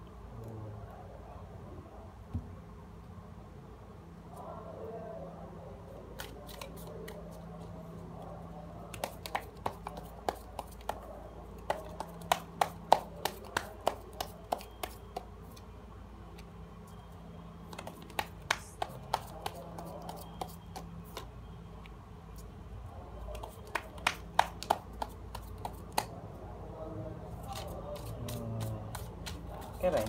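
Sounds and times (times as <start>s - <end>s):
cards clicking and snapping: 6.2s - 7.2s.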